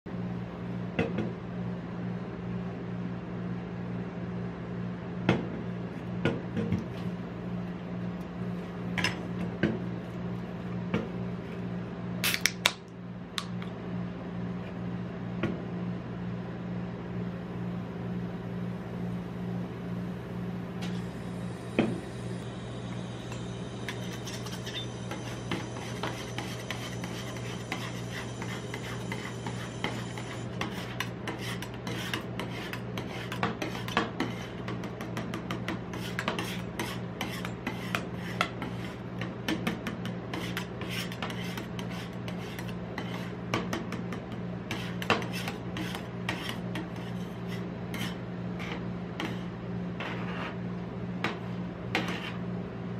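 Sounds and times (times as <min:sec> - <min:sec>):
can pull tab cracking open: 0:12.2 - 0:12.8
cold plate humming: 0:15.9 - 0:52.9
spatulas scraping on plate: 0:23.9 - 0:43.4, 0:44.7 - 0:50.6, 0:52.0 - 0:52.4.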